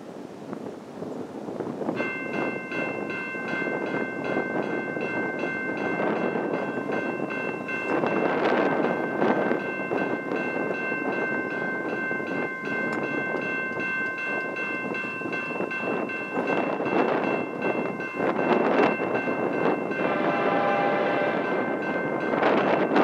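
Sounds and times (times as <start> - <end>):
train rumbling: 0.0 - 23.0
crossing bell ringing: 1.9 - 23.0
locomotive horn chord: 19.9 - 22.0.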